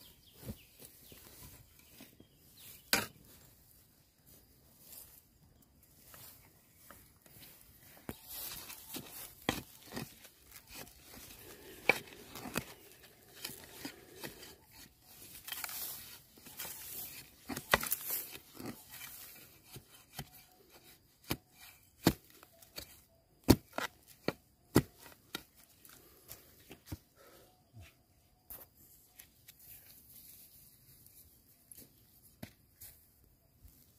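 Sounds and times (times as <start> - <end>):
bamboo cracks and knocks: 8.1 - 26.0.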